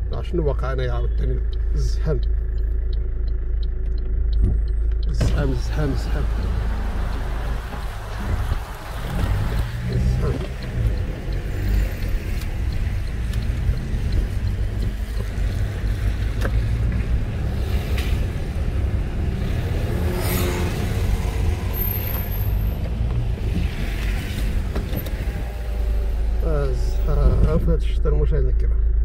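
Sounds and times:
car engine rumble: 0.0s - 29.0s
tyres on wet road: 4.5s - 27.6s.

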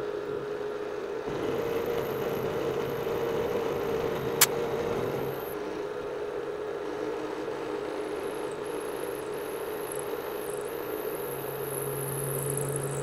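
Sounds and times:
low steady machine tone: 0.0s - 13.0s.

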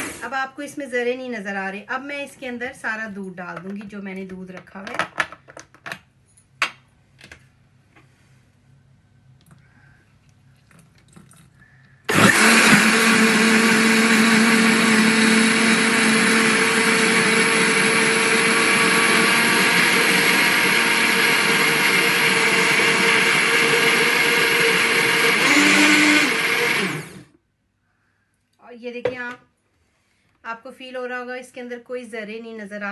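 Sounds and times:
blender running: 0.0s - 0.4s, 12.1s - 27.3s.

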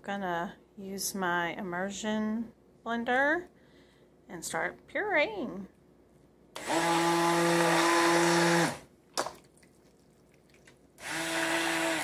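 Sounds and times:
immersion blender motor hum: 6.6s - 8.8s, 11.0s - 12.0s.

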